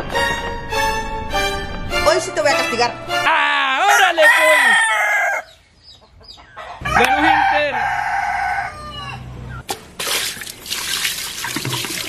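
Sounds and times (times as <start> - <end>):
rooster crowing: 3.7 - 5.6, 6.5 - 9.3.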